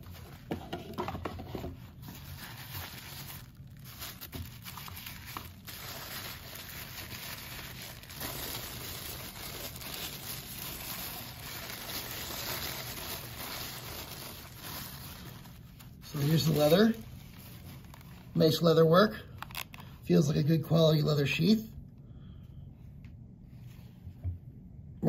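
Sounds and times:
tissue paper crinkling: 1.8 - 18.8.

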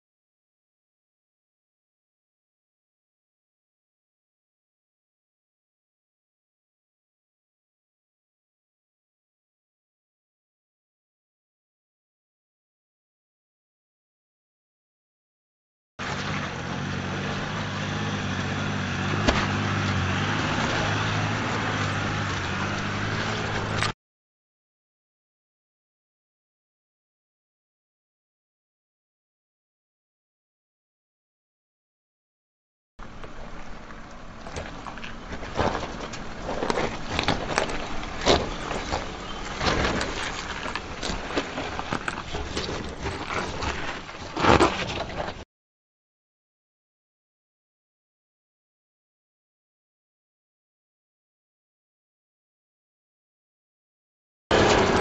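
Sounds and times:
engine running at low revs: 16.0 - 23.9, 54.5 - 55.0
low engine hum: 16.0 - 24.0, 33.0 - 44.3, 54.5 - 55.0
tyres crunching over gravel: 16.0 - 24.0, 33.0 - 45.4, 54.5 - 55.0
stones clicking under wheels: 33.0 - 45.4, 54.5 - 55.0.

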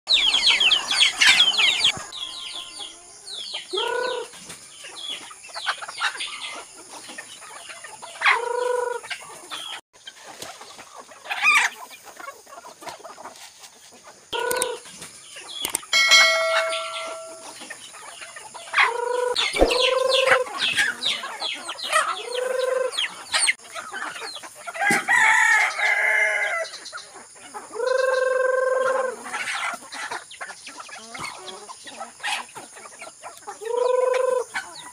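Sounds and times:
chickens clucking and calling: 0.1 - 34.9
short high chirps: 16.0 - 17.6.

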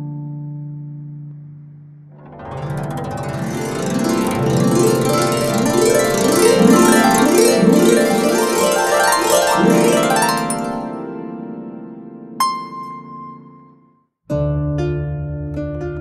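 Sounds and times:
harp plucked runs: 2.2 - 10.9
low harp chord ringing: 2.2 - 13.7.

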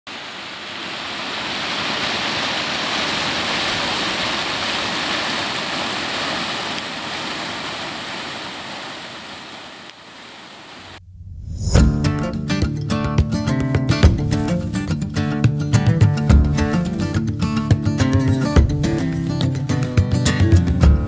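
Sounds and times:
waterfall rushing into pool: 0.1 - 11.0.

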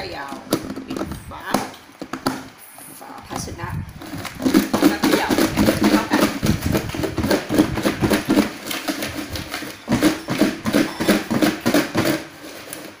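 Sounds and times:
food rattling in plastic container: 3.9 - 13.0.

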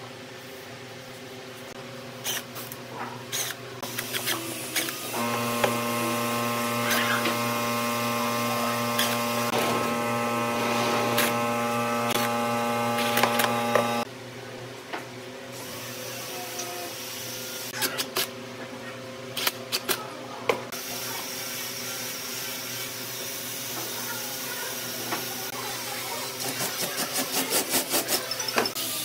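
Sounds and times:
cordless impact driver running: 5.1 - 14.1.

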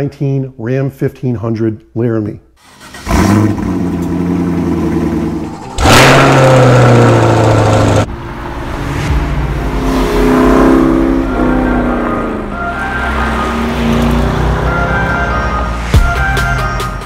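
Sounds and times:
car engine revving: 2.6 - 16.0.

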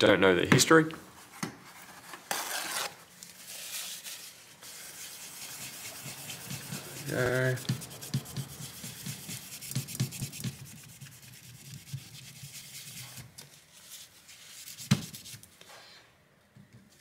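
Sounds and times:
rubbing on metal plate: 4.7 - 13.2.

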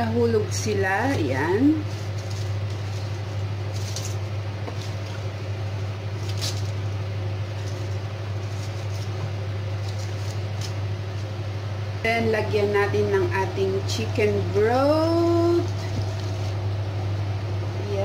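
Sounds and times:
steady low hum: 0.0 - 18.0
wooden spatula stirring cabbage: 1.5 - 5.4.

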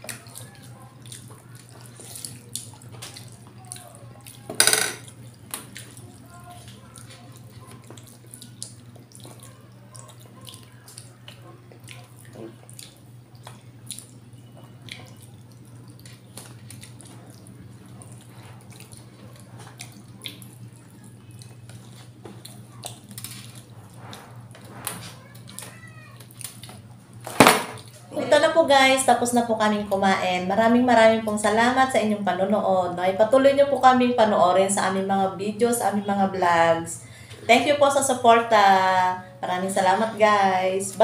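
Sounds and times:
chewing and lip smacking: 0.0 - 24.2, 25.2 - 27.2.

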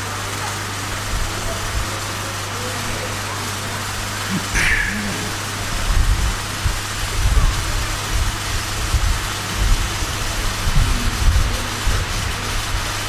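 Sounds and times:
electrical hum and hiss: 0.0 - 13.0.

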